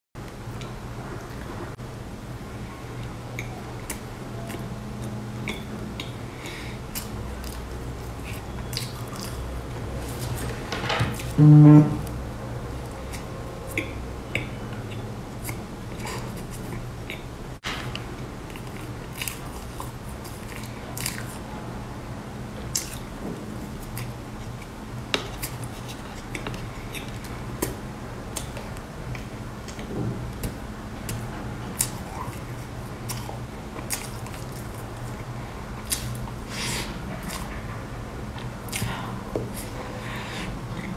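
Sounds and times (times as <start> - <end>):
steady low hum: 0.2 - 40.9
person chewing cake: 3.0 - 10.6, 12.7 - 17.4, 18.5 - 21.4, 22.7 - 37.6, 38.3 - 40.9
lip smacks and clicks: 8.2 - 9.4, 31.8 - 32.4.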